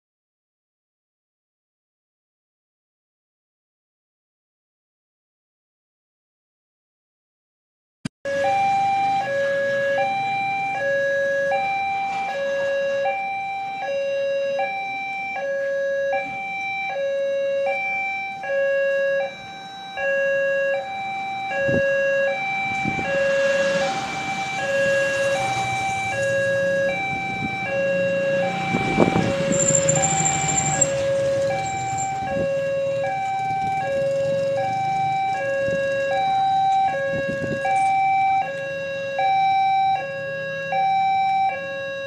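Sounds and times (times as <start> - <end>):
two-tone crossing alarm: 8.3 - 42.0
motorbikes passing: 21.0 - 37.6.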